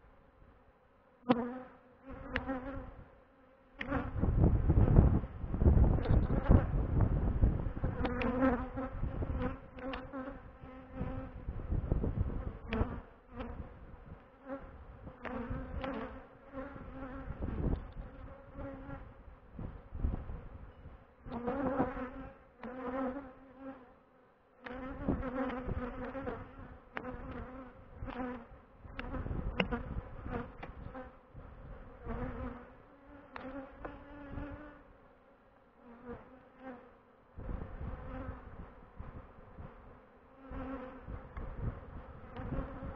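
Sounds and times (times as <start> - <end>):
bees buzzing: 1.2 - 5.0, 12.3 - 19.7, 21.0 - 24.0, 24.6 - 35.0, 35.8 - 42.9.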